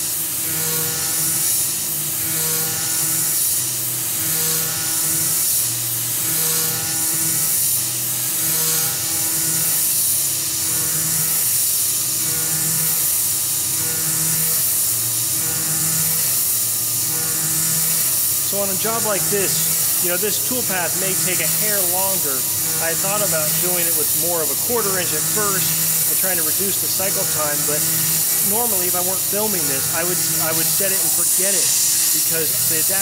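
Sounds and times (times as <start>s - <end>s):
mill cutting aluminum: 0.0s - 33.0s
coolant spray hiss: 14.1s - 33.0s.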